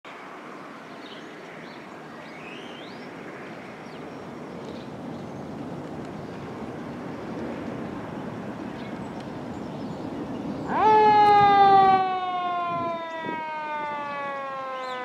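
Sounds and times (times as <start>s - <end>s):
fire engine and road rumble: 0.1s - 15.0s
siren winding up and down: 10.7s - 15.0s.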